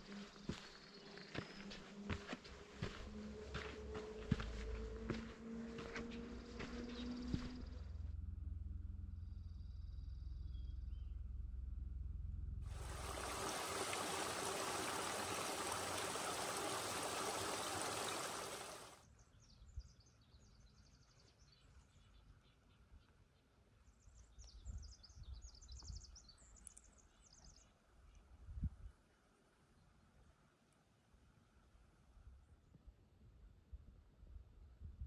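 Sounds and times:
creek running over rocks: 12.7 - 19.0.

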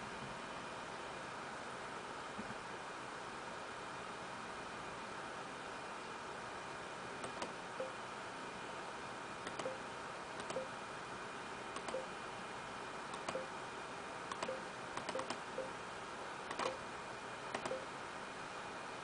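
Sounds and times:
computer and room hiss: 0.0 - 19.0
light mouse clicks: 7.2 - 7.6, 9.4 - 9.8, 11.8 - 12.1, 13.1 - 13.5, 14.3 - 15.7, 17.5 - 17.8.

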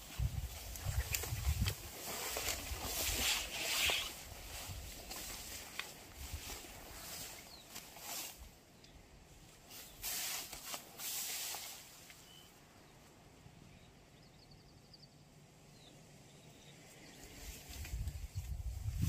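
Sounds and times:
small bird chirping faintly: 11.8 - 18.7.

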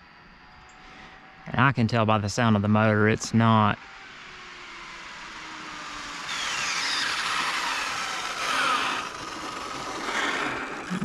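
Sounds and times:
electric motor whining: 2.9 - 11.0.

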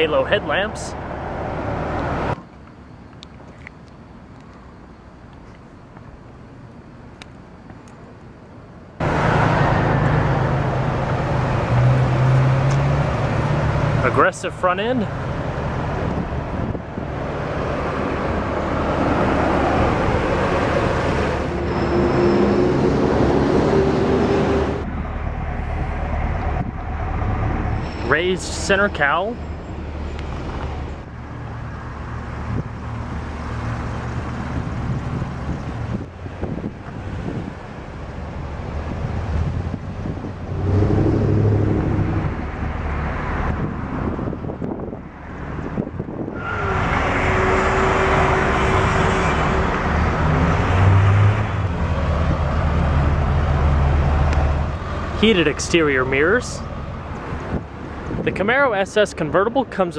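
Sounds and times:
traffic rushing past: 0.0 - 2.4, 9.0 - 59.9
vehicle engine rumble: 0.0 - 59.9
wind buffeting microphone: 15.5 - 21.4, 23.2 - 27.8, 32.1 - 46.9, 56.2 - 58.7.

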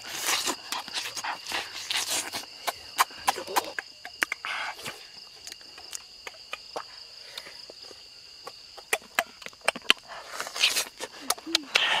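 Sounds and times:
crickets trilling: 0.0 - 12.0
eating clicks and smacks: 2.2 - 7.5, 8.4 - 12.0.

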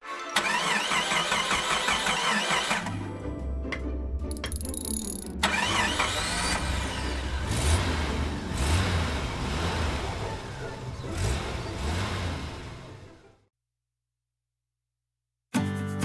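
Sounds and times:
car engine revving: 5.4 - 13.4.

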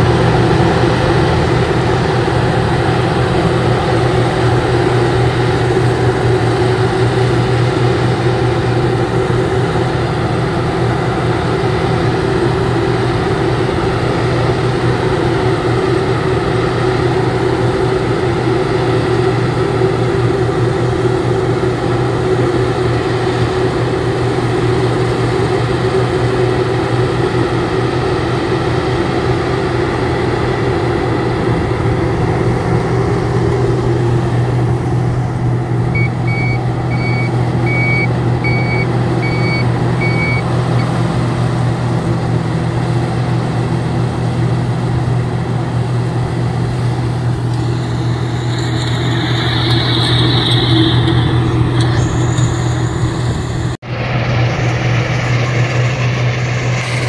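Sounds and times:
harvester engine running: 0.0 - 57.0
short beeps: 35.9 - 40.9.

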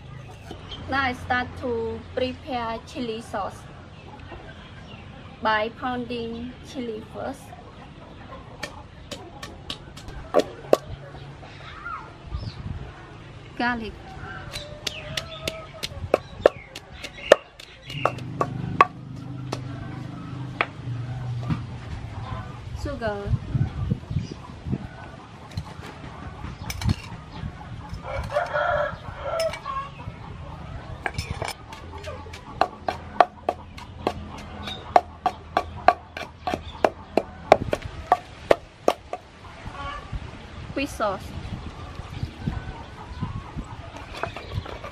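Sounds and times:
pestle pounding in mortar: 8.6 - 10.9, 14.5 - 19.7, 31.1 - 39.2, 44.0 - 44.9.

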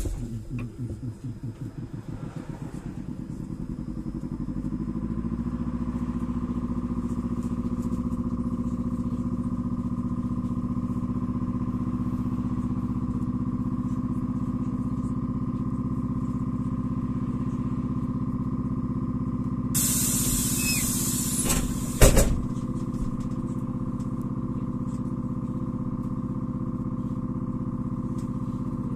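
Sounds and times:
motor throbbing: 0.0 - 5.0.

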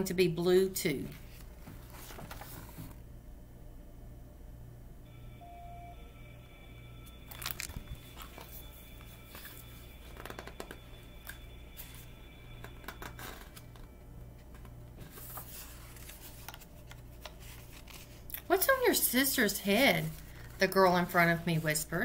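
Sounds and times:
book pages rustling: 1.1 - 3.0, 7.3 - 12.1, 12.9 - 21.9
low hum: 2.9 - 22.0.

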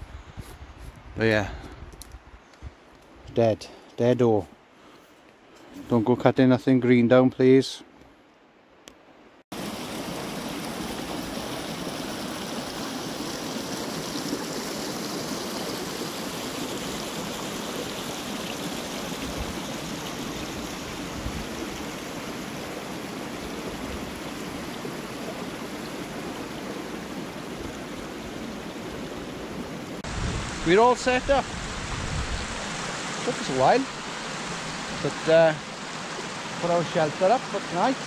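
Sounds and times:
stream running over rocks: 9.5 - 38.0.

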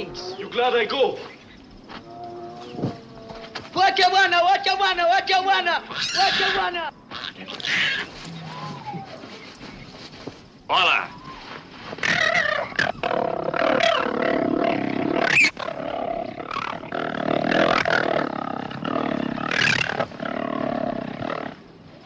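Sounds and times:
big cat growling and snarling: 12.1 - 21.6.

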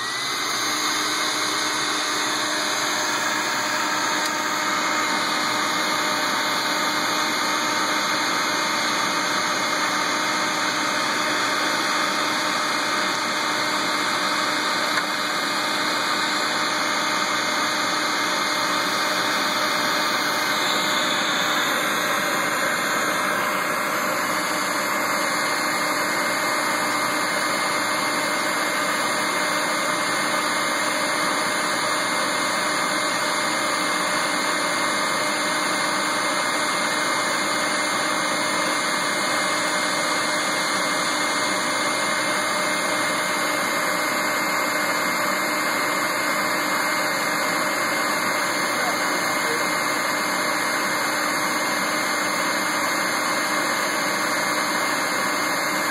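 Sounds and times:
vacuum motor rushing with whine: 0.0 - 55.9.

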